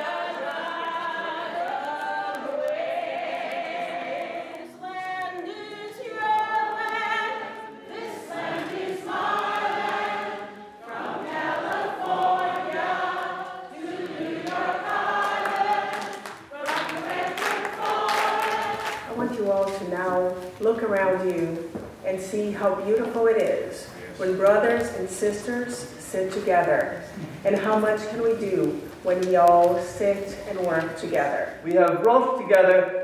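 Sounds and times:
group singing: 0:00.0 - 0:19.8.

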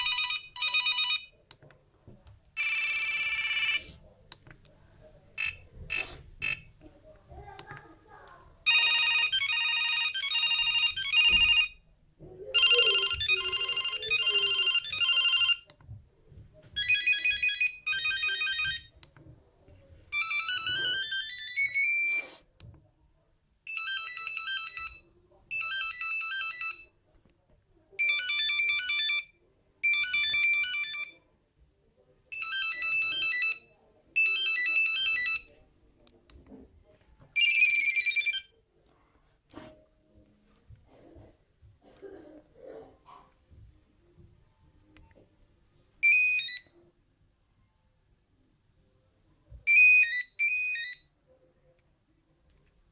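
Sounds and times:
phone ringtone beeping melodies: 0:00.0 - 0:01.4, 0:02.6 - 0:04.0, 0:08.7 - 0:11.8, 0:12.6 - 0:15.6, 0:16.8 - 0:18.9, 0:20.1 - 0:22.3, 0:23.7 - 0:26.9, 0:28.0 - 0:31.2, 0:32.3 - 0:35.5, 0:37.4 - 0:38.5, 0:46.0 - 0:46.7, 0:49.7 - 0:51.1.

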